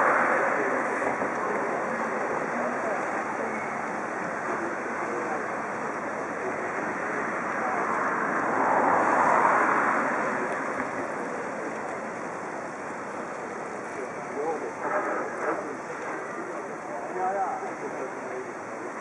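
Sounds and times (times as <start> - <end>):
murmur of crowd talking: 0.0 - 19.0.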